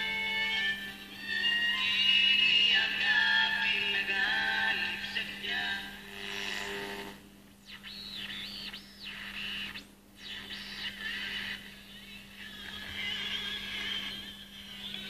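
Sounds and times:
steady low hum: 0:00.0 - 0:15.0
radio whistles sweeping: 0:07.6 - 0:11.7.

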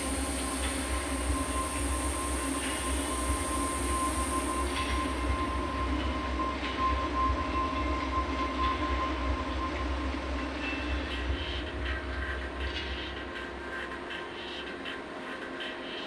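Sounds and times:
high hiss: 0:00.0 - 0:07.1
deep steady synthesizer rumble: 0:00.0 - 0:14.2.

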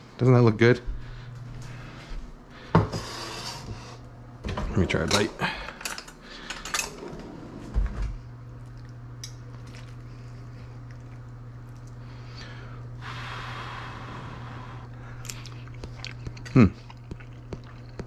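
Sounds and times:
low steady hum: 0:00.0 - 0:18.0
quiet eating: 0:08.4 - 0:18.0.

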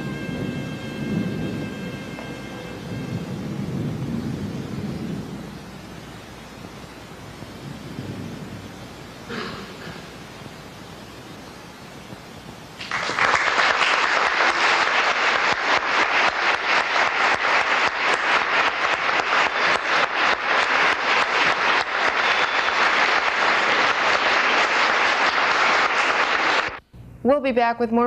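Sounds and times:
audience applause: 0:00.0 - 0:03.4, 0:12.8 - 0:26.8
hall hiss: 0:00.0 - 0:12.8.

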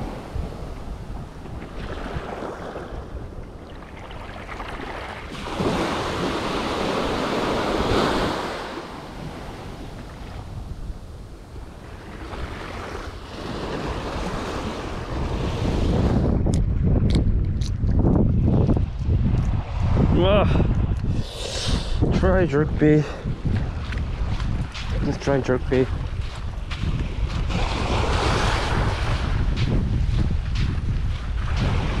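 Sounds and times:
wind buffeting microphone: 0:00.0 - 0:32.0
surf breaking on beach: 0:04.4 - 0:10.8.

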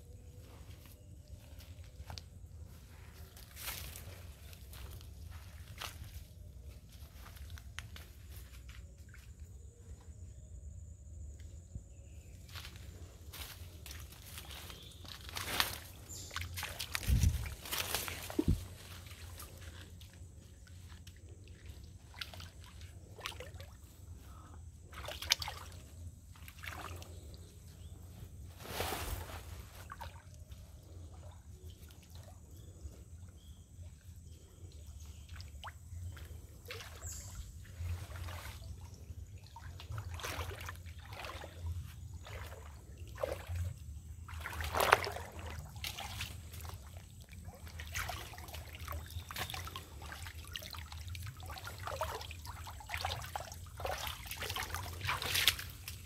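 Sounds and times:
water splashing and trickling: 0:00.1 - 0:09.7, 0:12.2 - 0:56.0.

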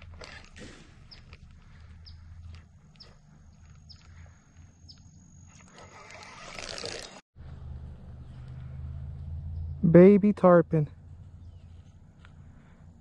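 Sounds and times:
bird chirping: 0:01.1 - 0:05.6, 0:11.3 - 0:12.0.

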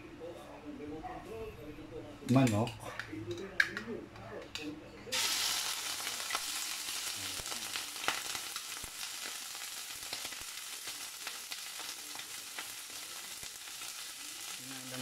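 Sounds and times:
chicken sizzling in hot oil: 0:05.1 - 0:15.0.

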